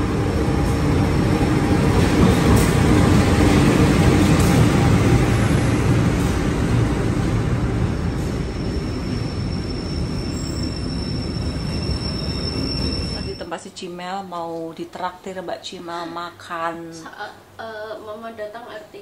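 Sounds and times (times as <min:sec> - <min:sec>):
passenger train rumbling past: 0:00.0 - 0:13.9
thin high whine: 0:08.2 - 0:13.6.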